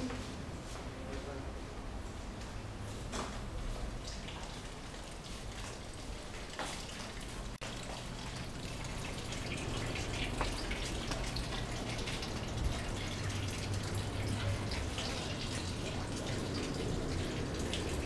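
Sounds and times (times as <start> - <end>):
water dripping and trickling: 3.9 - 18.0.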